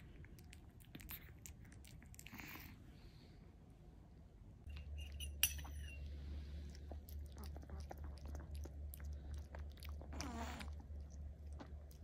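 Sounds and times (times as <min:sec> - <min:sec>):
dog licking and chewing: 0:00.0 - 0:02.7, 0:06.7 - 0:12.0
steady low hum: 0:00.0 - 0:12.0.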